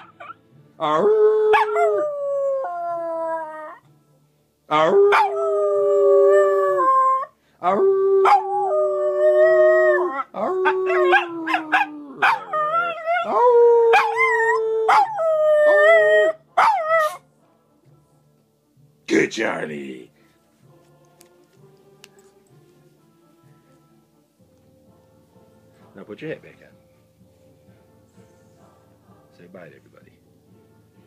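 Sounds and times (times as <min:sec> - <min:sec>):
small dog howling: 0:00.0 - 0:03.8, 0:04.8 - 0:17.2
dog yelping: 0:10.6 - 0:14.3, 0:14.9 - 0:15.2, 0:16.6 - 0:17.2.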